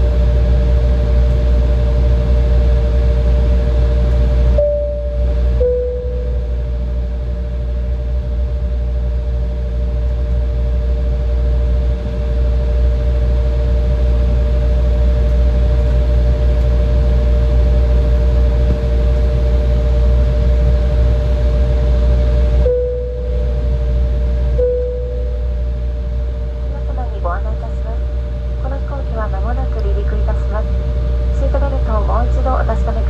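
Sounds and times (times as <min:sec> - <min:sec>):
two-note engine whine: 0:02.3 - 0:10.2, 0:14.4 - 0:33.0
airliner cabin rumble and hiss: 0:26.6 - 0:33.0.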